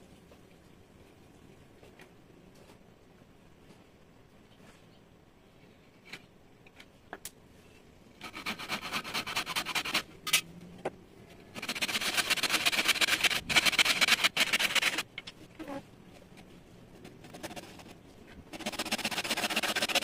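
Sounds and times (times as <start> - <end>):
handsaw cutting wood: 8.2 - 10.0, 11.6 - 15.0, 18.6 - 20.0.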